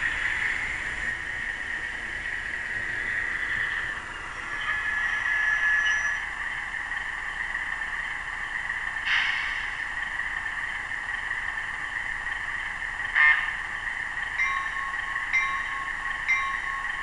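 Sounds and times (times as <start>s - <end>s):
diesel locomotive idling from small speaker: 0.0s - 17.0s
locomotive bell strikes: 4.5s - 6.3s, 13.1s - 13.7s, 14.3s - 17.0s
short hiss: 9.1s - 9.8s.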